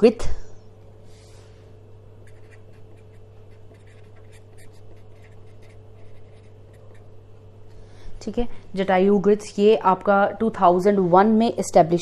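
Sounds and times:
steady low hum: 0.0 - 12.0
pen scratching on paper: 2.2 - 7.2.

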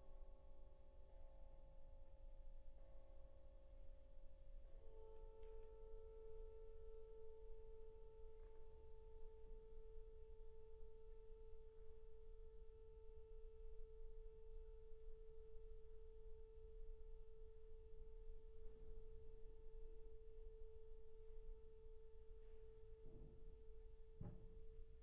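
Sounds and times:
faint knocks: 24.2 - 24.6.

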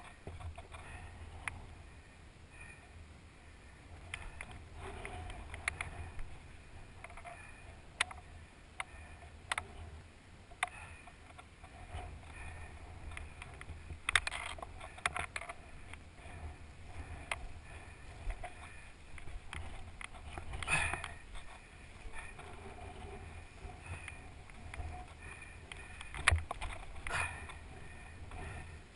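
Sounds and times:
sharp clicks and knocks: 13.1 - 16.0, 22.2 - 27.6.

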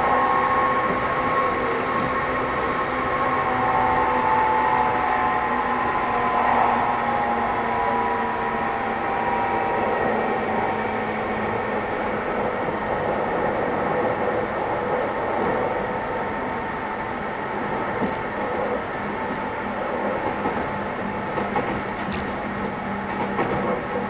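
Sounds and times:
wheel and track rumble: 0.0 - 24.0.

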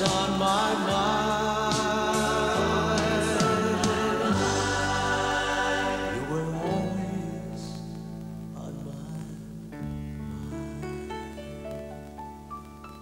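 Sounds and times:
sustained chords: 0.0 - 8.5.

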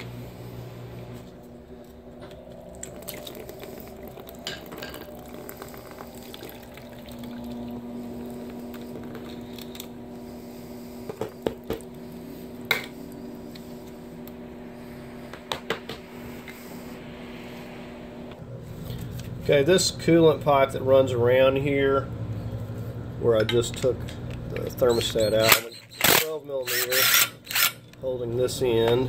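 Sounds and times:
coolant trickling into pan: 2.7 - 9.6.

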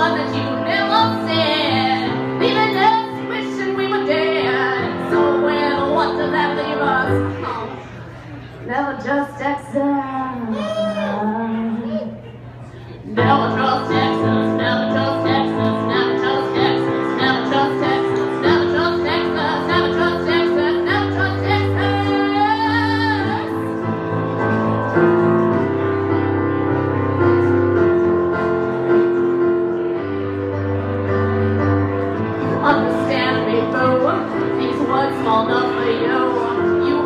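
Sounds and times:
woman singing: 0.0 - 7.7, 13.1 - 23.8, 32.6 - 37.0
electronic keyboard chords: 13.2 - 37.0.

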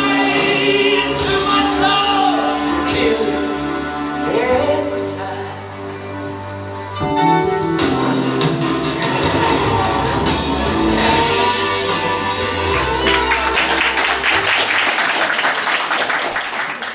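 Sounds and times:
loud music: 0.0 - 16.6
audience applause: 12.4 - 16.9.

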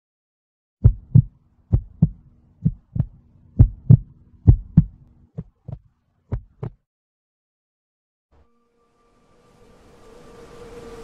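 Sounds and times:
faint steady hum: 0.8 - 5.4
heartbeat: 0.8 - 6.8.

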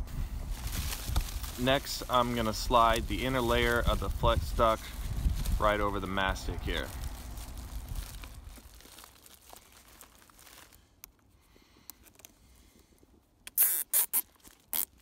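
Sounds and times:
plastic duct liner crinkling: 0.5 - 15.0
cable tie zipping: 13.4 - 15.0.

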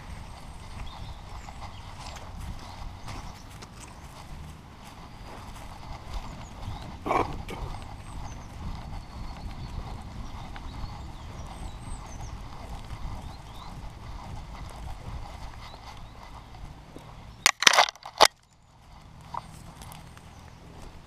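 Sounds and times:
dog footfalls on grass: 0.0 - 8.0
rustle: 12.0 - 21.0.

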